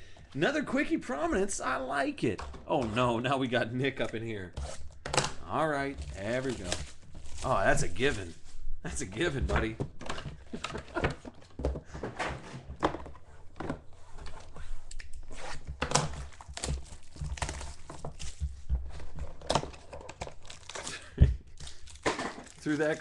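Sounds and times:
plastic wrapping crinkling and tearing: 4.7 - 8.4, 14.9 - 23.0.

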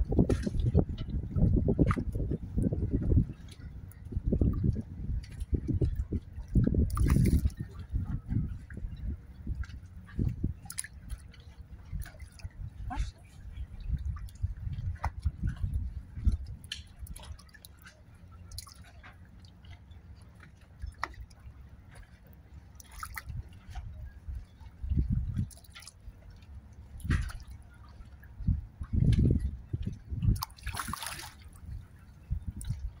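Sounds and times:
dull low rumbles: 0.0 - 33.0
water lapping against a hull: 0.0 - 33.0
small splashes and drips: 0.3 - 8.8, 9.4 - 33.0.

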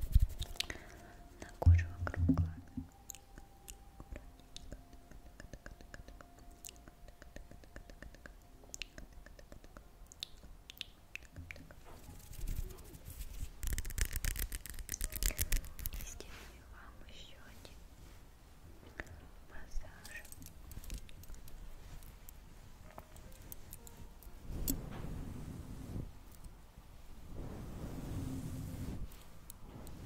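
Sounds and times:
crackly scratchy strokes: 0.0 - 0.7, 11.9 - 16.6, 27.0 - 30.0.

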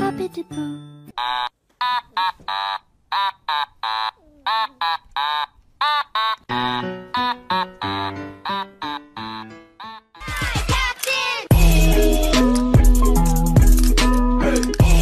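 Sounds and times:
low backing music: 11.5 - 15.0.

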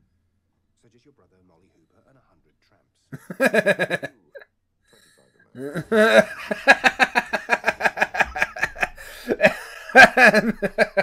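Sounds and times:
man laughing: 3.2 - 4.1, 5.6 - 11.0.

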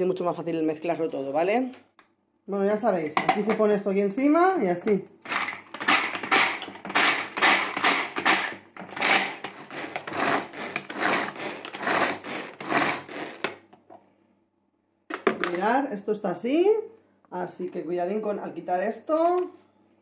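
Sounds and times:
manual food chopper blades spinning: 5.2 - 13.7.

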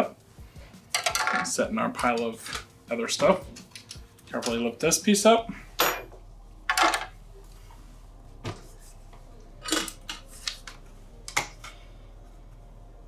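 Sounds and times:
metallic clanks and knocks: 1.0 - 2.6.

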